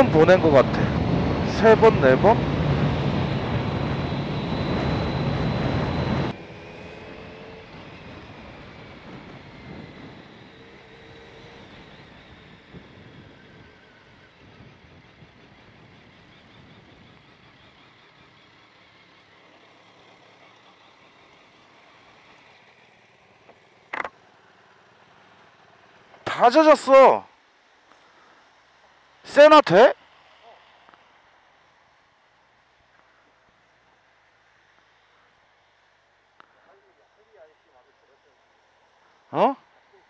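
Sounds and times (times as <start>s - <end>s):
wind rush: 0.0s - 10.6s
motorcycle engine at speed: 0.0s - 26.4s
faint falling whine: 0.0s - 31.9s.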